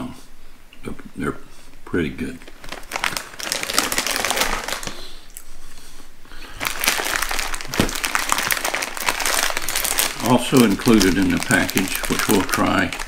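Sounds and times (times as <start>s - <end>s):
plastic snack bags crinkling: 2.3s - 5.4s, 6.4s - 13.0s.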